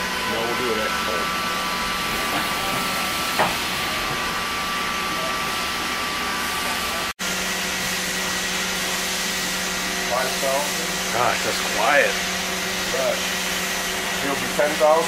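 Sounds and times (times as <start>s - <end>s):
machining center whirring: 0.0s - 15.0s.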